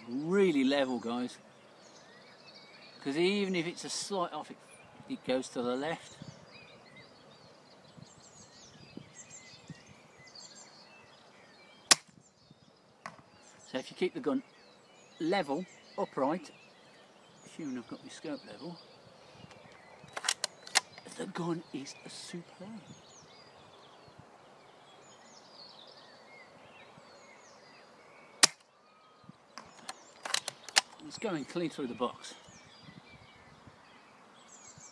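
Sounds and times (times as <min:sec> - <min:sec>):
faint bird chirps: 0:00.0 - 0:34.9
airsoft rifle shot: 0:11.9 - 0:12.1, 0:28.4 - 0:28.6.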